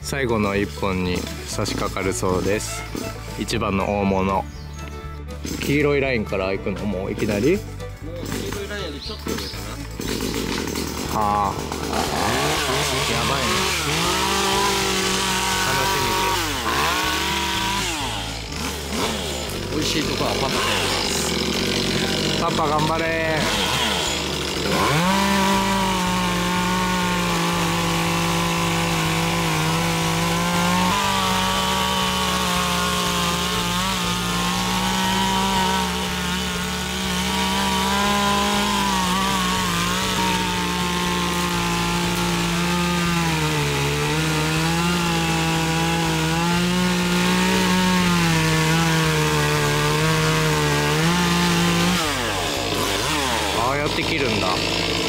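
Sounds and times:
chainsaw cutting wood: 0.0s - 4.5s, 5.3s - 55.0s.

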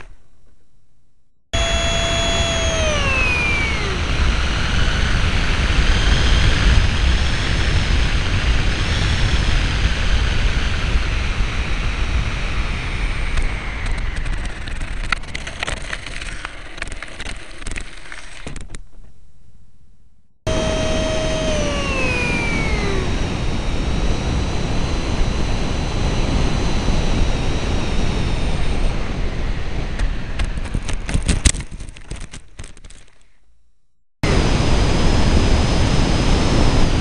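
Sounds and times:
ducted fan whine: 1.6s - 16.8s, 20.5s - 32.3s, 34.2s - 37.0s
wind rush over airframe: 20.5s - 31.4s, 34.2s - 37.0s.

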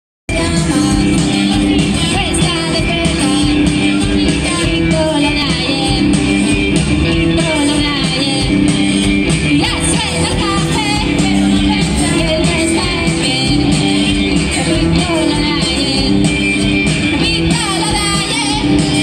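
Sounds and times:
drum kit: 0.3s - 19.0s
electric guitars: 0.3s - 19.0s.

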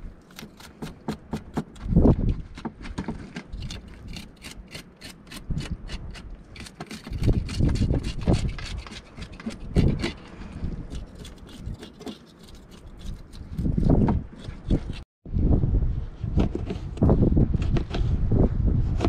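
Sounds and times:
knife scraping fish scales: 3.5s - 15.0s.

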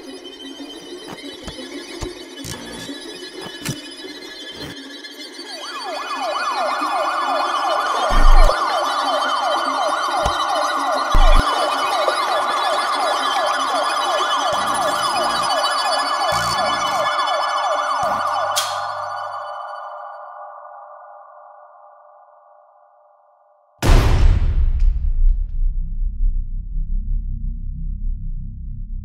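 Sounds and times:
siren wailing: 4.4s - 22.4s.

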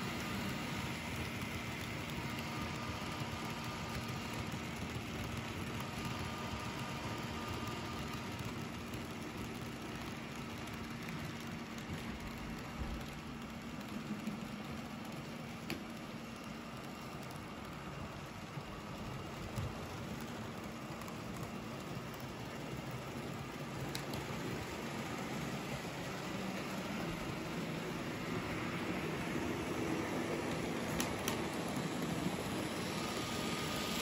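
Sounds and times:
faint motor hum: 0.0s - 34.0s
model train wheels rattling: 0.0s - 34.0s.

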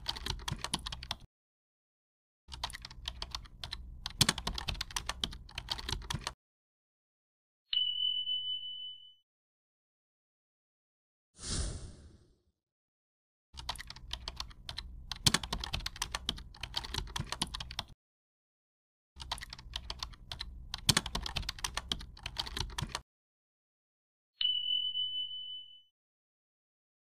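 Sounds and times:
keyboard typing clicks: 0.0s - 1.3s, 2.5s - 6.4s, 13.6s - 18.0s, 19.2s - 23.0s.

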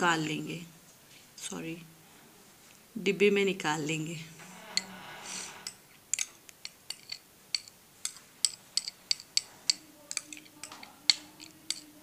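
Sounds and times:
spoon clinking on glass: 6.2s - 12.0s.

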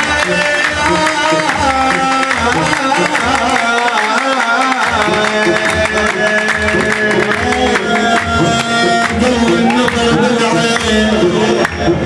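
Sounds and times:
steady drum beat: 4.8s - 12.0s.

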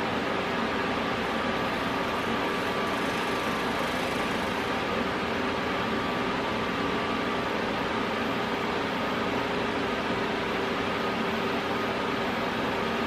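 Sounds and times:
welder wire-feed motor humming: 0.0s - 8.6s.

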